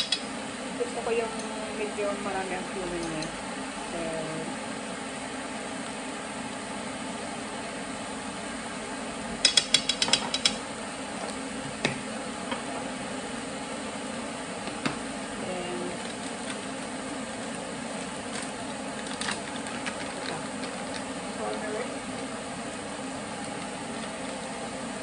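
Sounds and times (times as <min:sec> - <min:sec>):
teaspoon tapping on skillet: 0:00.0 - 0:00.2, 0:09.4 - 0:10.6.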